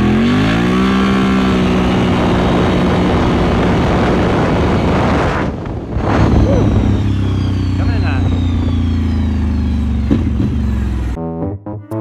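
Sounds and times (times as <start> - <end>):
quad engine at full throttle: 0.0 - 11.2
wind noise: 1.6 - 9.3.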